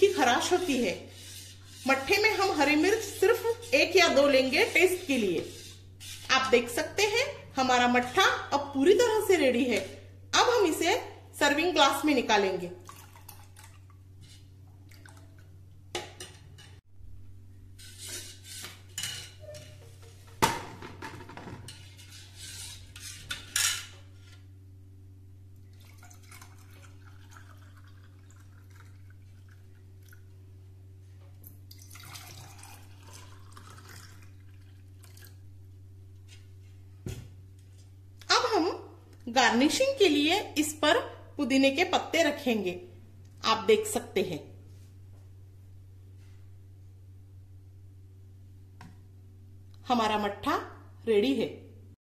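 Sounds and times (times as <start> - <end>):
ladle scraping steel bowl: 0.0 - 7.2, 17.8 - 20.4, 21.5 - 24.5
liquid pouring into glasses: 12.8 - 13.9, 25.6 - 30.3, 31.7 - 35.4.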